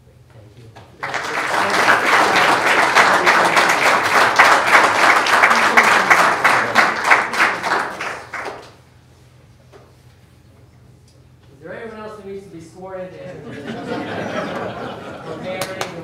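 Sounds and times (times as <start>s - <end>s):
audience applauding: 1.0s - 8.8s, 14.0s - 16.0s.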